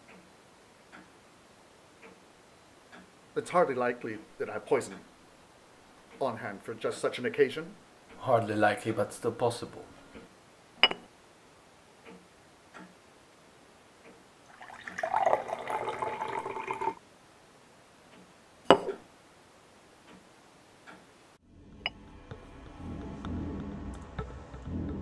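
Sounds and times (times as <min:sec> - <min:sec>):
glass clinking: 0:10.8 - 0:11.1, 0:14.6 - 0:17.0, 0:18.7 - 0:19.0
light taps on glass: 0:10.8 - 0:11.1, 0:18.7 - 0:19.0
drink pouring into a glass: 0:14.5 - 0:17.0.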